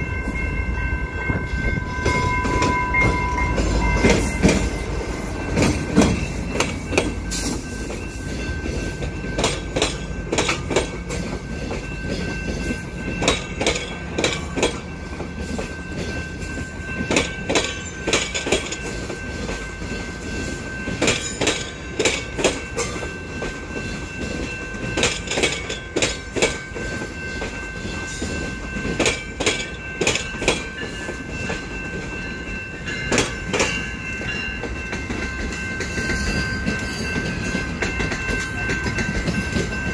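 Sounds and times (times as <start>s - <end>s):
steady high tone: 0.0s - 10.4s
train rumble: 0.0s - 39.9s
train wheels clacking over rail joints: 1.2s - 39.9s.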